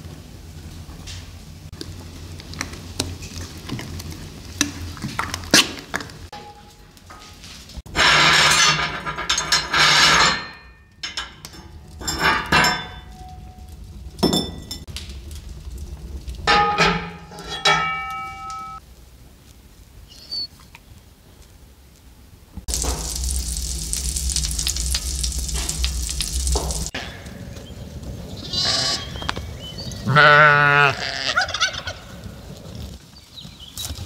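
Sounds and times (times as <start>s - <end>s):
steel pan clanging on iron stovetop: 6.3s - 13.5s, 14.2s - 14.9s, 16.5s - 18.8s
hotplate rings scraping and clanking: 6.3s - 18.8s, 22.7s - 27.6s.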